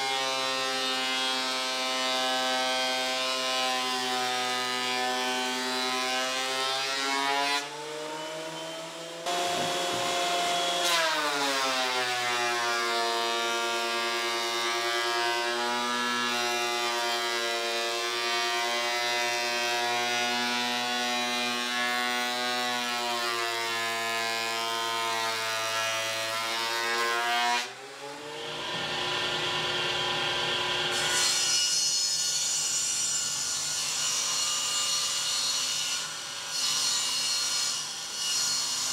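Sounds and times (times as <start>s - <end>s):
planer cutting boards: 0.0s - 38.9s
thickness planer motor whine: 7.8s - 12.1s, 27.8s - 31.2s.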